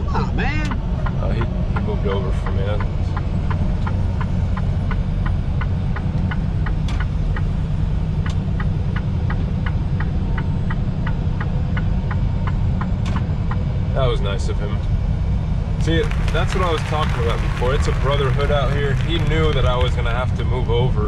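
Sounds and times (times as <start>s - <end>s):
truck engine and road rumble: 0.0s - 21.0s.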